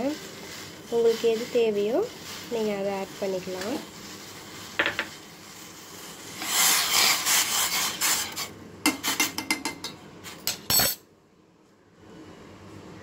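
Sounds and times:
metal spoon stirring in steel pot: 0.0s - 9.5s.

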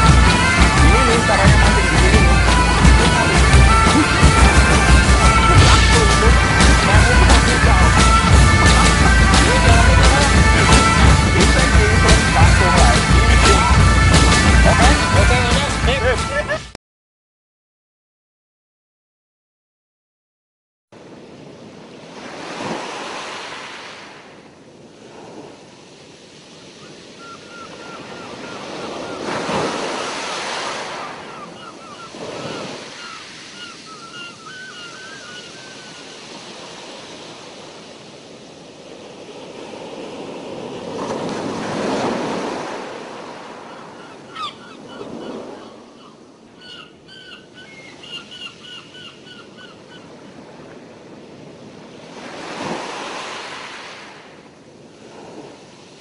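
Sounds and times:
rushing water surges: 0.0s - 16.7s, 21.0s - 48.7s, 50.0s - 56.0s
sea waves washing: 0.0s - 16.8s, 21.0s - 56.0s.

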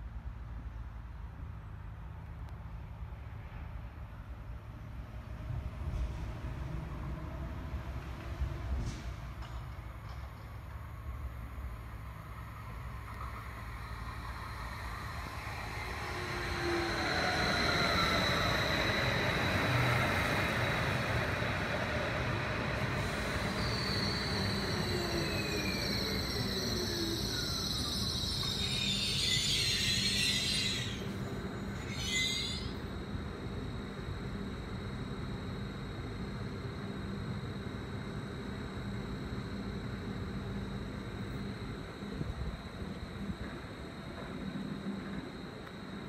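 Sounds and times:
rail and wheel noise: 0.0s - 46.0s
train drive whine: 1.6s - 46.0s
electric train braking: 13.0s - 46.0s.

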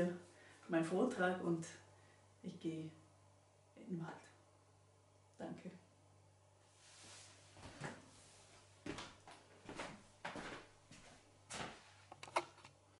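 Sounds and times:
faint room hum: 0.0s - 13.0s
footsteps: 8.8s - 12.0s.

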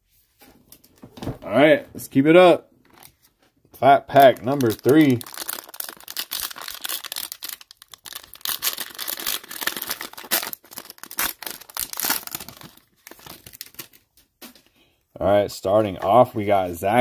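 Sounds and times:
plastic wrapper tearing and crinkling: 4.1s - 14.4s.

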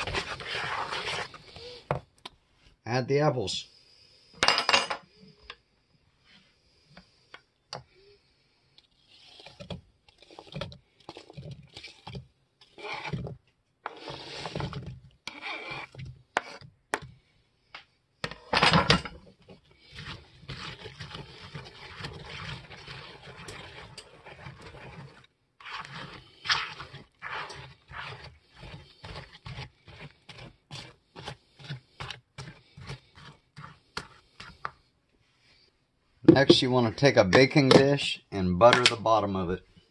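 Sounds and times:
whisk stirring batter in plastic bowl: 0.0s - 2.0s, 8.8s - 17.2s, 19.2s - 35.0s.

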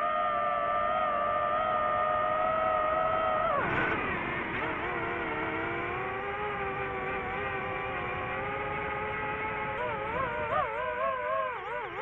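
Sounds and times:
quadcopter propellers whirring: 0.0s - 12.0s.

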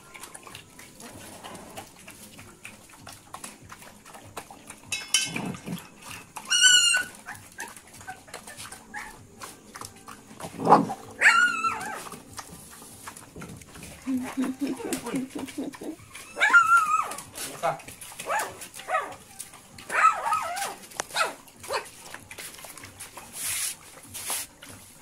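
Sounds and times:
puppy whining: 4.9s - 12.4s, 13.0s - 17.4s, 18.1s - 22.0s
puppy yelp: 6.4s - 9.2s, 10.6s - 12.2s, 14.0s - 17.3s, 18.2s - 21.9s.

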